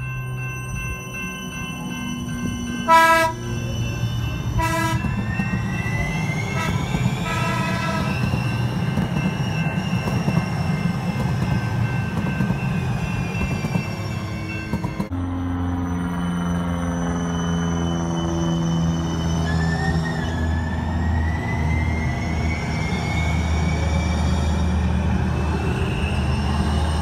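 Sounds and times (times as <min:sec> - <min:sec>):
trains rumbling past: 0:00.0 - 0:27.0
train horn blast: 0:02.9 - 0:03.4, 0:04.5 - 0:05.2, 0:06.6 - 0:08.2.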